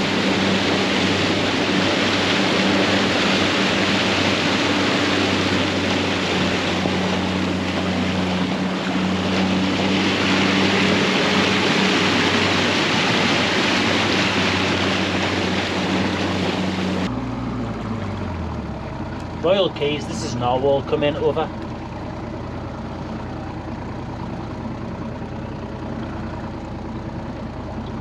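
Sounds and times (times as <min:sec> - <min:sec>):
rush of wind and water: 0:00.0 - 0:18.6, 0:19.4 - 0:22.3
boat engine running: 0:00.0 - 0:28.0.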